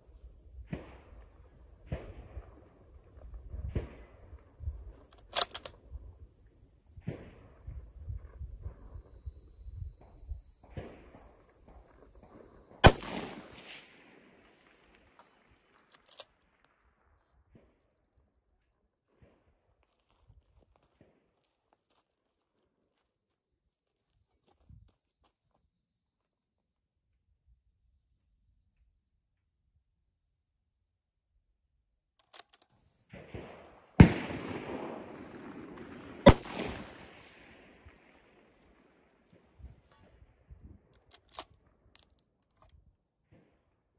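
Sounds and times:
rifle bolt clicks: 5.0 - 5.8, 15.9 - 16.3, 32.2 - 32.7, 41.0 - 42.8
rifle shot echoing: 12.8 - 15.0, 33.1 - 38.7.

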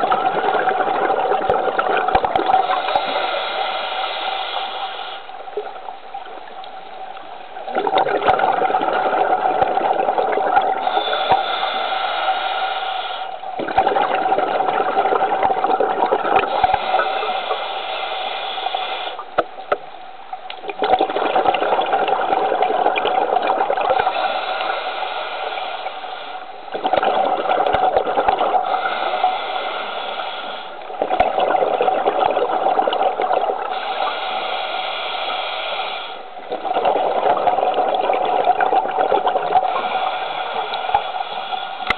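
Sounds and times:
exhaled bubbles underwater: 0.0 - 4.2, 7.5 - 11.8, 13.4 - 17.7, 20.5 - 24.8, 26.7 - 29.8, 30.8 - 34.2, 36.4 - 41.2.

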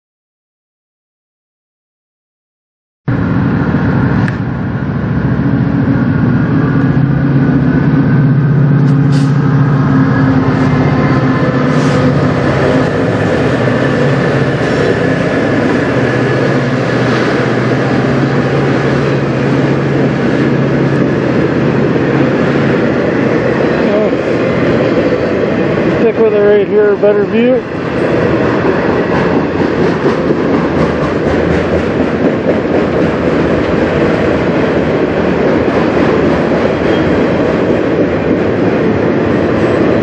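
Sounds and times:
locomotive engine drone: 3.1 - 40.0
train wheels clattering on rails: 10.3 - 40.0.

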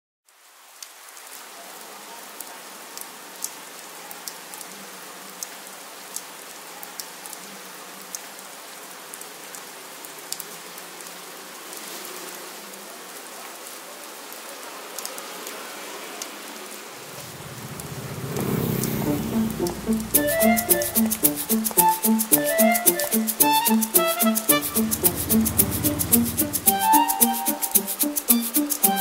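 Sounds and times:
steady rain falling: 0.3 - 29.0
sharp drop ticks: 18.8 - 29.0.

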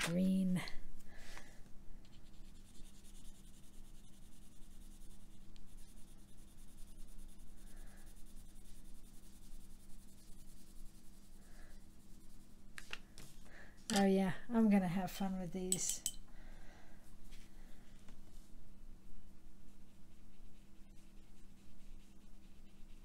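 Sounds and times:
pencil scratching on cardstock: 2.1 - 12.4, 19.7 - 23.0.

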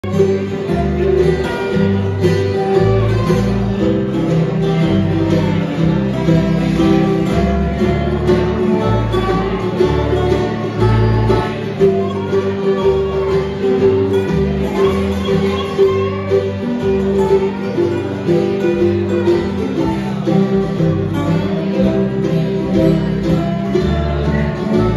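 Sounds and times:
bluegrass string band: 0.0 - 24.9.

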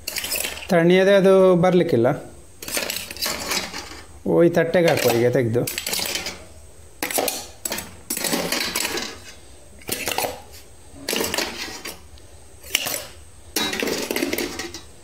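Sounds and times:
steel cups clinking: 12.6 - 14.9.

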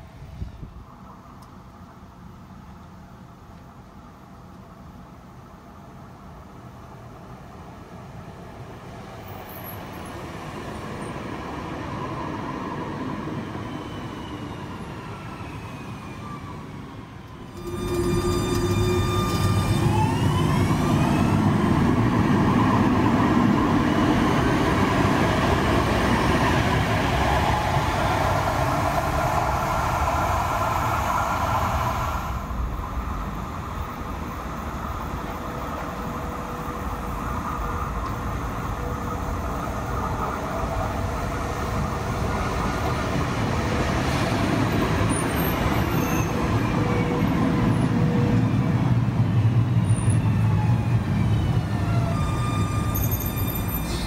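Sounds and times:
tram electric motor whine: 13.4 - 44.7
wheels rumbling on rails: 17.3 - 54.0.

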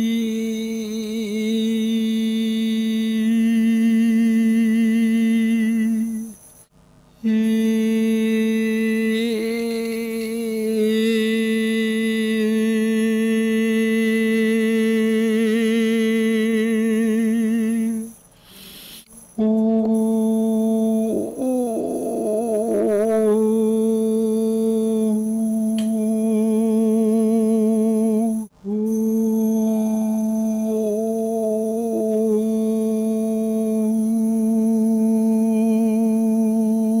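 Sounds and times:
person singing sustained notes: 7.2 - 18.2, 19.3 - 37.0.

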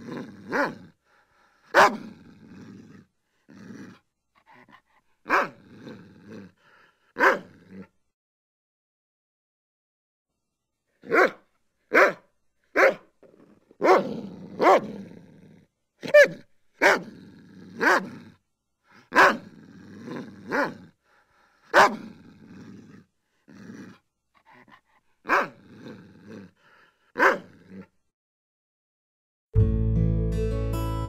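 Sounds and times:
dog barking: 0.5 - 0.8, 1.7 - 2.1, 5.3 - 5.6, 7.2 - 7.5, 11.0 - 13.1, 13.8 - 15.0, 16.0 - 17.1, 17.8 - 18.1, 19.1 - 19.5, 20.5 - 20.8, 21.7 - 22.1, 25.3 - 25.6, 27.2 - 27.8.

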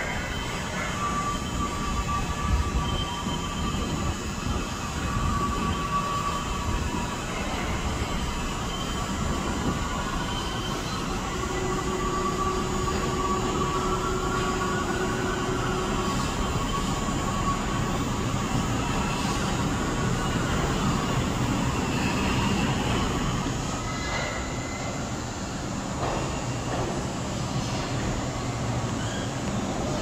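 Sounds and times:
thin whining tones: 0.0 - 30.0
train wheels rumbling on rails: 0.0 - 30.0.

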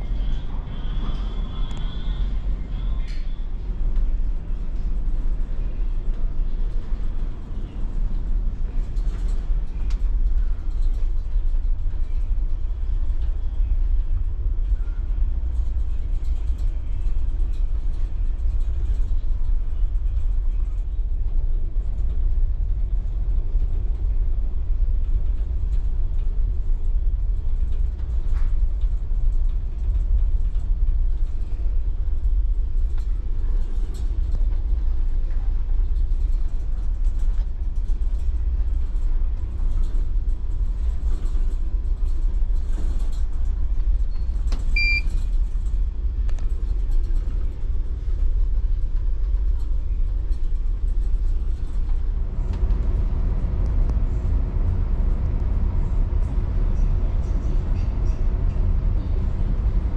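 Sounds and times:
ship engines rumbling: 51.1 - 59.9.

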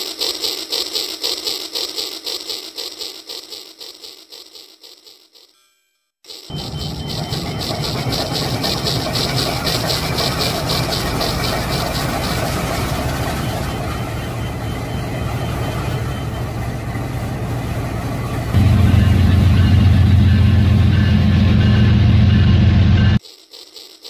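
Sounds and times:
fast even clicking: 0.0 - 5.5, 6.3 - 13.8
toy train motor hum: 0.0 - 5.6, 6.2 - 17.6, 23.2 - 24.0.

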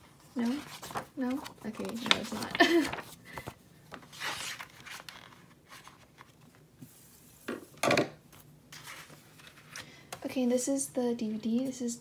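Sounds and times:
paper and cardboard rustling: 0.0 - 7.2, 8.4 - 9.9.

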